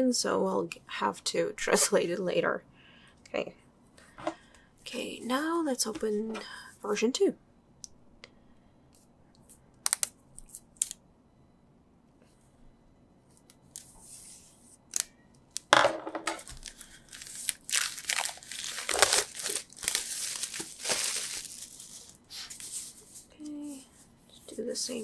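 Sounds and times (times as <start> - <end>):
plastic wrap crackling: 16.4 - 22.7.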